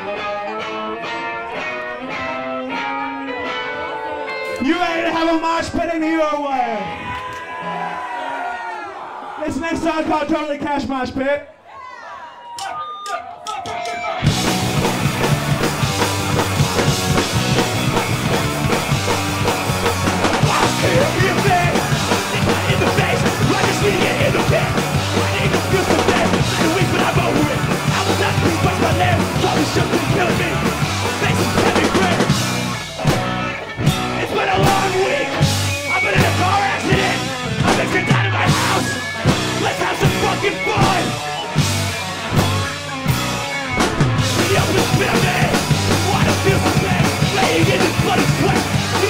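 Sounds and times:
punk band playing live: 0.0 - 7.1, 13.5 - 49.0.

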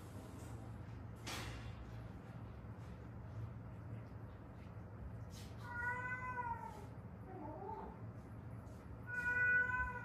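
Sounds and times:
cat meowing: 5.6 - 8.0, 9.1 - 10.0.

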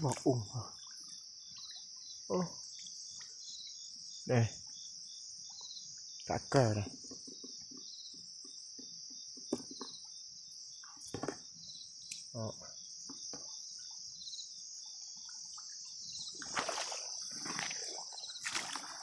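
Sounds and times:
crickets trilling: 0.0 - 19.0
insect chirping in pulses: 0.0 - 19.0
small knocks and splashes: 10.8 - 11.6, 15.2 - 19.0
sloshing through shallow water: 15.4 - 19.0.

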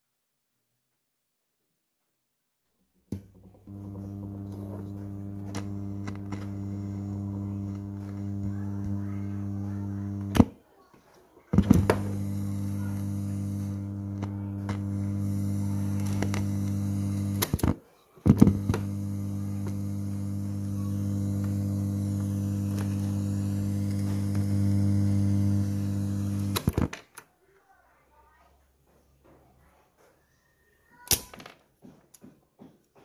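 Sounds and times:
mains hum through speakers: 3.2 - 27.1
radio power clicks: 3.7 - 10.6, 11.6 - 26.9.

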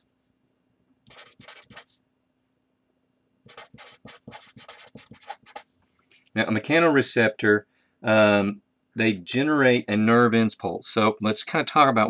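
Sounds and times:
marker scratching on paper: 1.1 - 2.0, 3.5 - 5.7.

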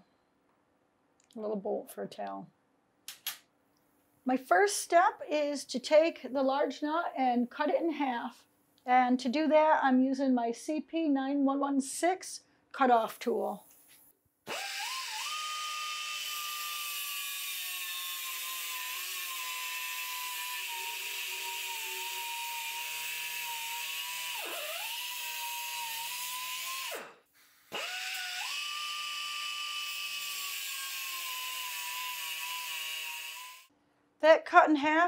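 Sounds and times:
air cut-off tool whining: 14.5 - 33.7.

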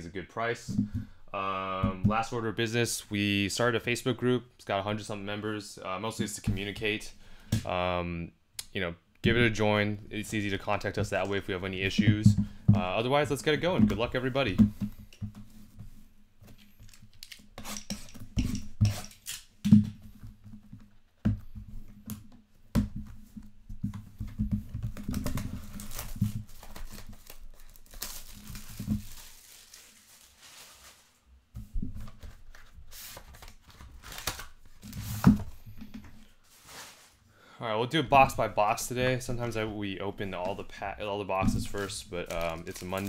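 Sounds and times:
cardboard being handled: 22.9 - 37.2, 41.4 - 43.0
plastic wrap tearing and crinkling: 25.0 - 31.2, 41.6 - 43.0.

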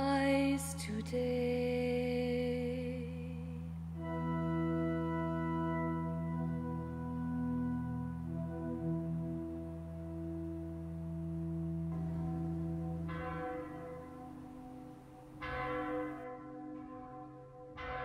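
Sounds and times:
low musical drone: 0.0 - 18.0
church bell tolling: 11.9 - 18.0.

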